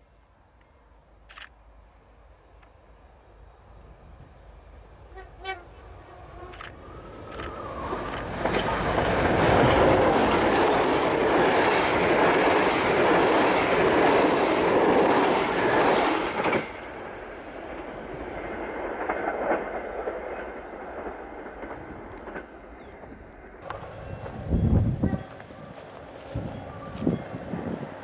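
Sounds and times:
train wheels rushing on rails: 6.5s - 28.0s.

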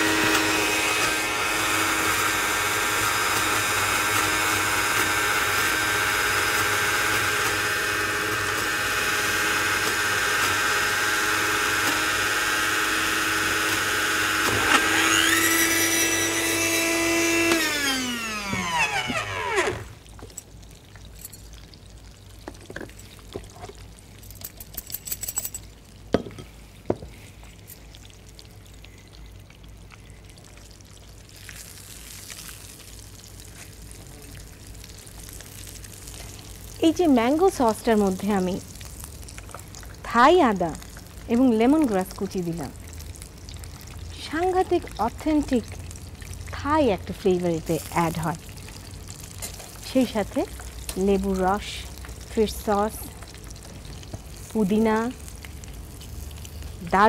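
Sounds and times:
electric blender running: 0.0s - 20.0s.

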